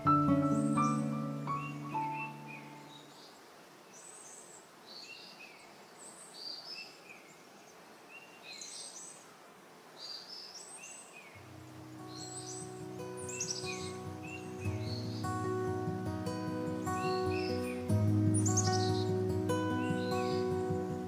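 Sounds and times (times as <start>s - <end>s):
background music: 0.0s - 2.9s, 11.7s - 21.0s
birds chirping: 0.0s - 9.2s, 10.0s - 21.0s
faint outdoor hiss: 0.0s - 21.0s.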